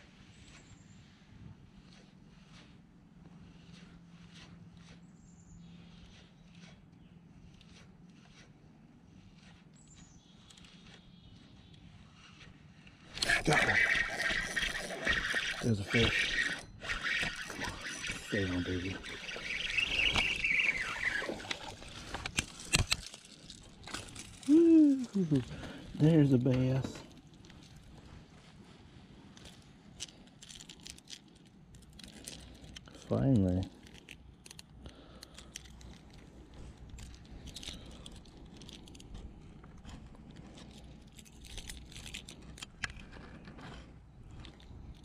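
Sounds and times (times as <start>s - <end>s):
small plastic clicks and scrapes: 5.6s - 24.5s, 29.3s - 45.0s
fishing reel whirring: 13.0s - 27.9s.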